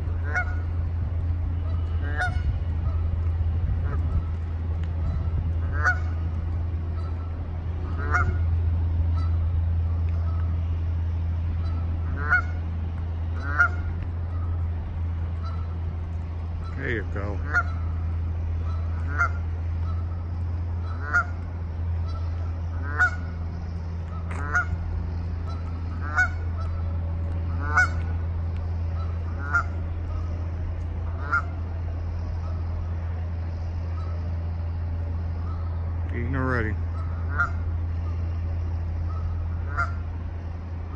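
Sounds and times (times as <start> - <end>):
goose honking: 0.0 - 40.2
low rumble: 0.0 - 40.9.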